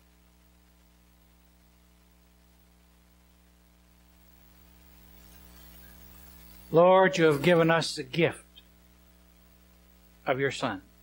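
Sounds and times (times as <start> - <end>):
faint electrical hum and hiss: 0.0 - 11.0.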